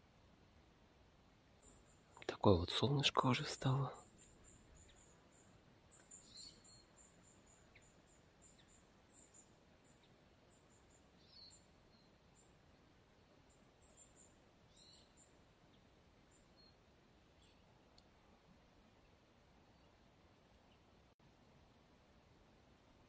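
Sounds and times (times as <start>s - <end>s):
faint high chirps: 1.6s - 18.2s.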